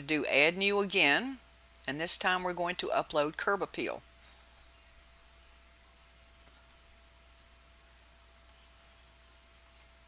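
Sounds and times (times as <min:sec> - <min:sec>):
faint steady hum: 0:00.0 - 0:10.0
computer mouse clicks: 0:04.4 - 0:04.8, 0:06.4 - 0:06.9, 0:08.3 - 0:08.7, 0:09.6 - 0:10.0.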